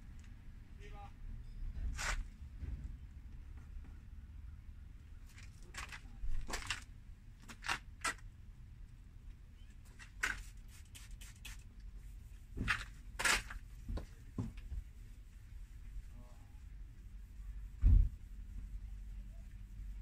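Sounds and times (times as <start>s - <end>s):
faint low hum: 11.8s - 20.0s.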